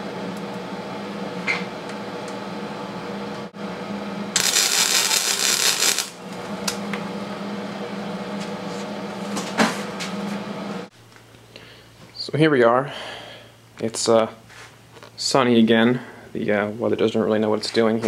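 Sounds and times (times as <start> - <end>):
welder humming: 0.0 - 11.8
welding arc crackling: 4.4 - 6.2.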